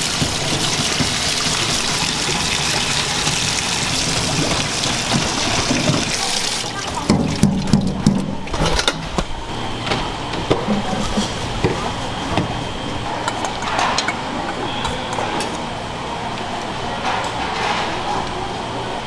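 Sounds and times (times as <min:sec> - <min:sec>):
metal bowls and utensils clinking: 0:13.2 - 0:15.7.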